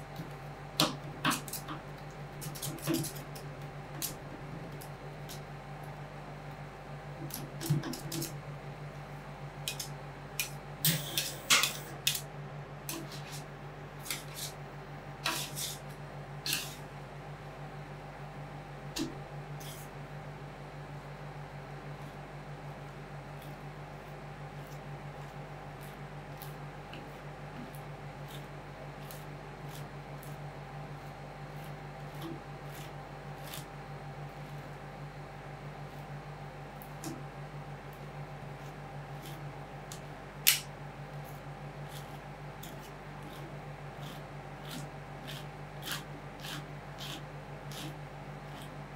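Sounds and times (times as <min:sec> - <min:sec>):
refrigeration unit humming: 0:00.0 - 0:48.9
metal spatulas scraping and tapping: 0:09.7 - 0:12.2, 0:14.0 - 0:14.6, 0:15.2 - 0:15.8, 0:16.5 - 0:16.8
metal spatulas scraping steel plate: 0:15.2 - 0:15.8, 0:16.5 - 0:16.8.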